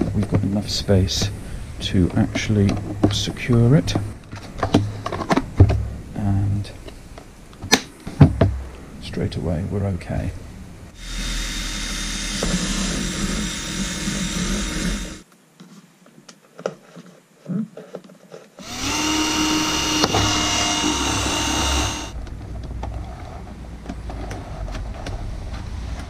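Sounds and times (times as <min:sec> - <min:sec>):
cordless drill drilling plastic: 0:11.0 - 0:15.2, 0:18.6 - 0:22.2.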